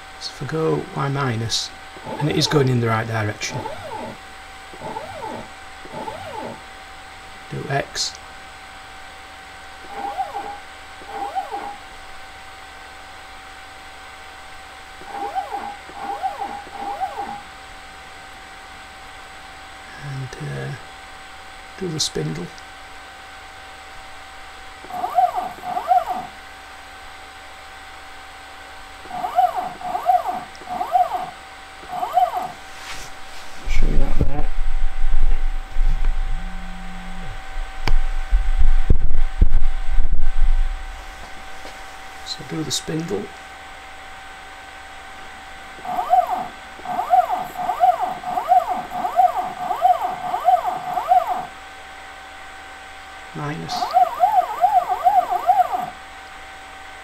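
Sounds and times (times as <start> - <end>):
stepper motor whine: 0.0 - 17.9, 24.0 - 32.9, 33.6 - 41.5, 42.3 - 52.1, 53.0 - 56.8
stepper motor short whines: 2.0 - 6.7, 9.8 - 11.9, 15.0 - 17.5.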